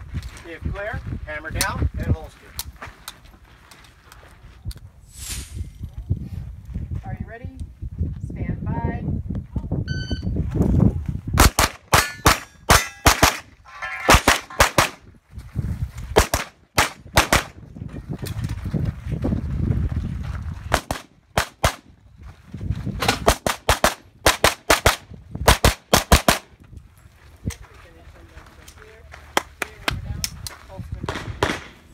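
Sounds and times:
electronic shot timer beep: 9.9 - 10.3
rapid pistol fire: 11.4 - 12.4, 16.2 - 17.6, 23.1 - 26.4, 31.1 - 31.8.

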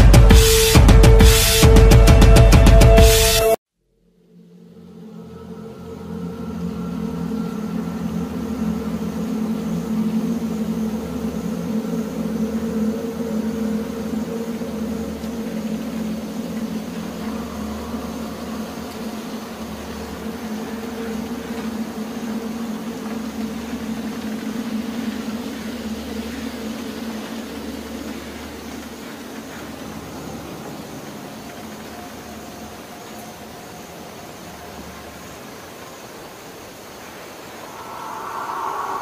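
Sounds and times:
low drone: 4.0 - 26.1, 37.4 - 39.0.

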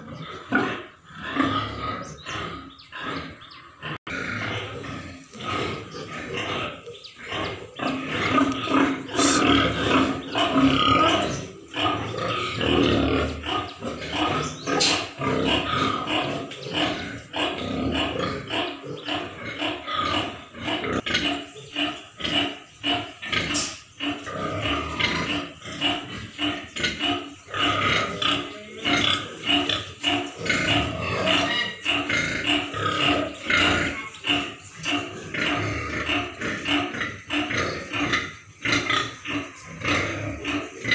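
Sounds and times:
pigs grunting: 0.0 - 40.9.

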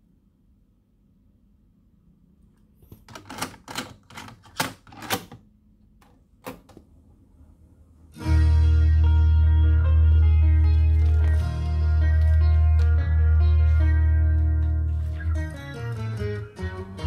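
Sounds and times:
cassette clicks and clatter: 2.9 - 5.4
music playing from tape: 8.2 - 17.0.

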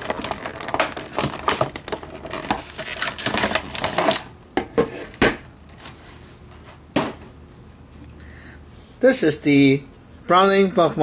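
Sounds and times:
plastic packaging crackling: 0.0 - 4.3.

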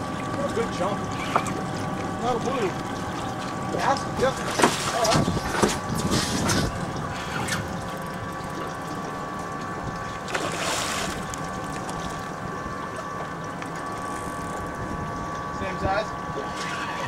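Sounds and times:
boat hum: 0.0 - 17.0
fish splashing in water: 1.1 - 14.7.

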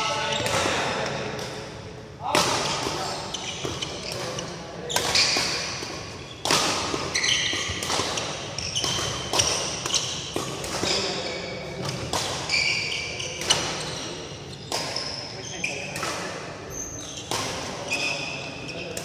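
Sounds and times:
rackets striking shuttlecock: 2.3 - 11.2
shoes squeaking on court: 3.0 - 16.1, 16.7 - 19.0.

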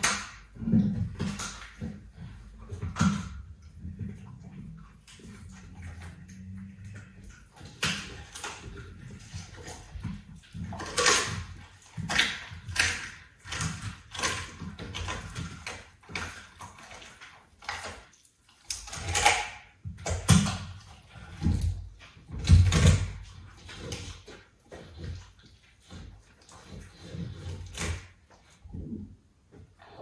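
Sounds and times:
leopard chewing raw meat: 0.0 - 30.0.

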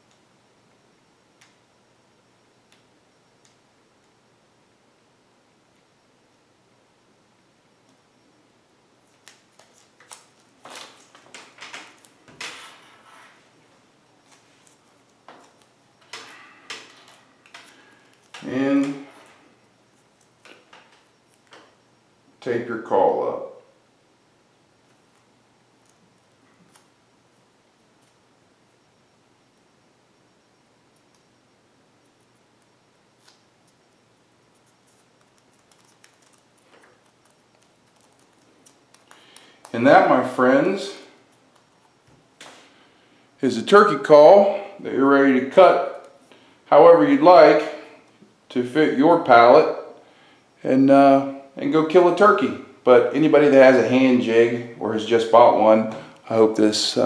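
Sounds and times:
tape clicking and crinkling: 9.0 - 12.4, 14.2 - 18.9, 32.6 - 33.8, 34.5 - 39.8, 41.3 - 42.6.

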